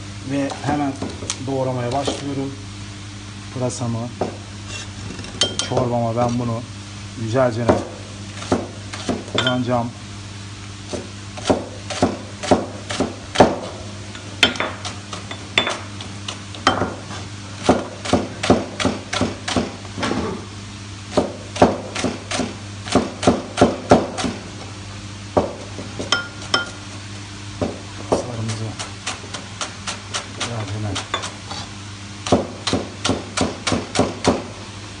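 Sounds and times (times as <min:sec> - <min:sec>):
knife chopping on cutting board: 0:07.6 - 0:09.6, 0:10.9 - 0:13.8, 0:16.7 - 0:19.8, 0:21.1 - 0:24.4, 0:32.2 - 0:34.5.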